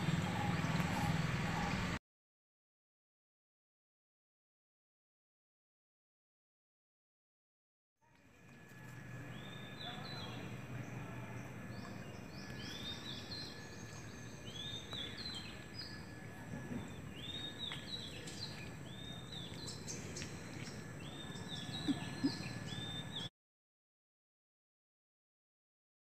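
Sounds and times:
birds whistling calls: 0:00.0 - 0:02.0, 0:09.2 - 0:23.3
low background hum: 0:08.0 - 0:23.3.

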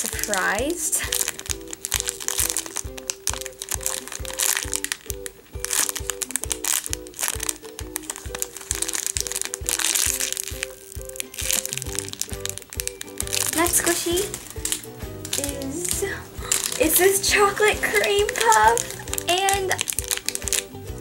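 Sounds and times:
background music with steady beat: 0:00.0 - 0:21.0
plastic packaging crinkling: 0:00.0 - 0:21.0.

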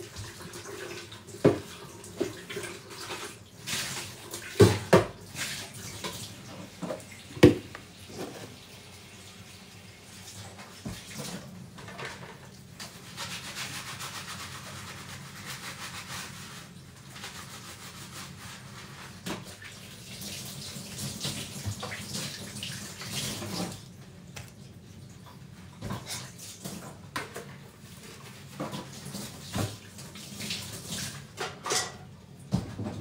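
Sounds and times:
tap running into a sink: 0:01.3 - 0:03.2, 0:04.4 - 0:05.2, 0:05.9 - 0:08.5, 0:21.1 - 0:24.6
dishware knocking against sink: 0:07.4 - 0:07.8.

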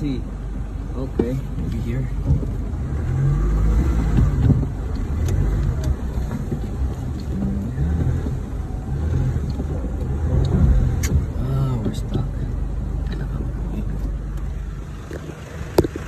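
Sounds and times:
vehicle engine revving under load: 0:01.2 - 0:16.0.

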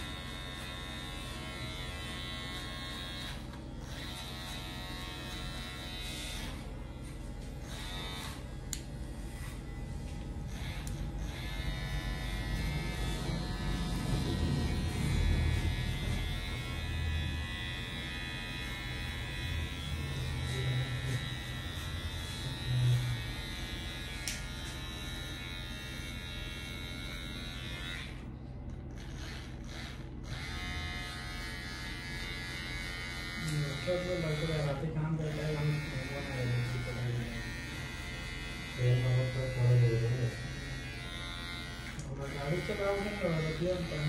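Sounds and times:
electric hair clipper buzzing: 0:00.0 - 0:44.0.

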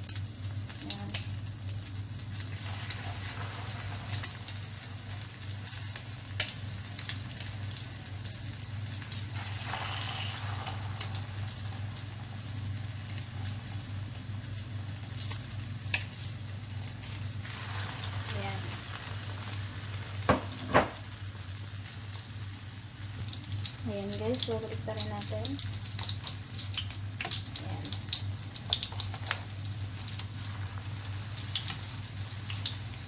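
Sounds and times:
rolls sizzling in oil: 0:00.0 - 0:33.0.

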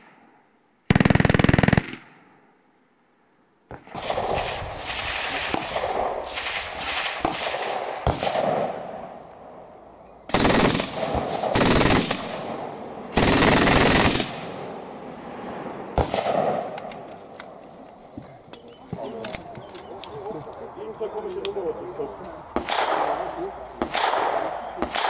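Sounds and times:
machine gun firing bursts: 0:00.9 - 0:02.1, 0:03.9 - 0:08.8, 0:10.3 - 0:14.6.

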